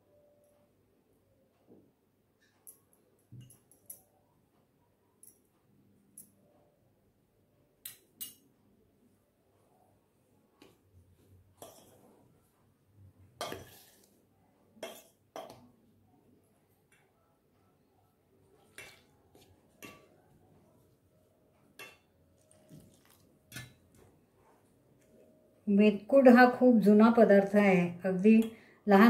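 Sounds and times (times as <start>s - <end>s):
spoon clinking against metal bowl: 7.8s - 8.4s, 21.7s - 24.0s.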